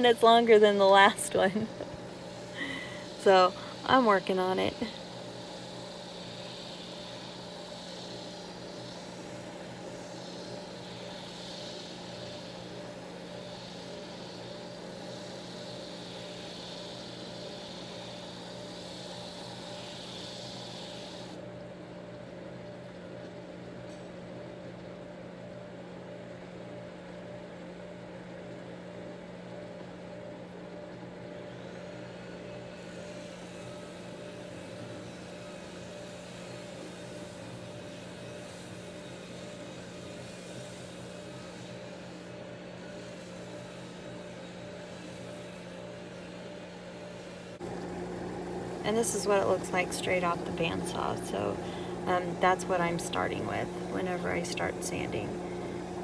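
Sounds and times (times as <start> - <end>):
drum sander motor hum: 0.0 - 23.9, 24.6 - 56.0
sanding hiss: 2.5 - 21.4.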